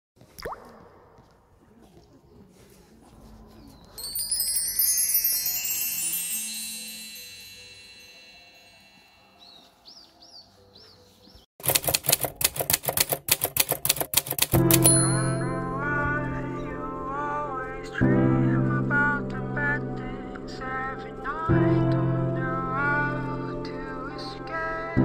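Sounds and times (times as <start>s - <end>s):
shimmering wind chime effect: 3.8s - 10.0s
music: 4.0s - 11.4s, 14.5s - 25.0s
rapid sharp clicks: 11.6s - 14.9s.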